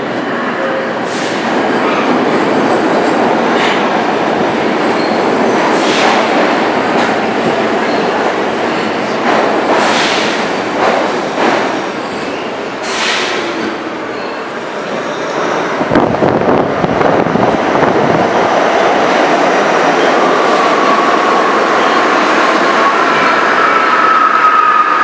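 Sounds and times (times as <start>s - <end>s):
train cars clattering: 1.3s - 13.8s.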